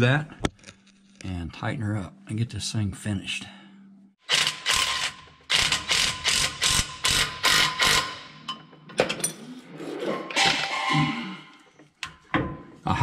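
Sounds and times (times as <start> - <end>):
ratchet wrench clicking: 4.3 - 8.4.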